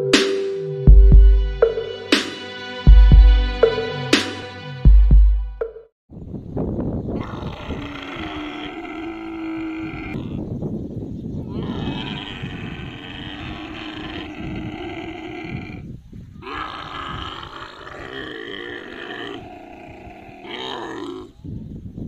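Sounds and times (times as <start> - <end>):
camel calf bawling: 7.2 - 10.5, 11.5 - 21.4.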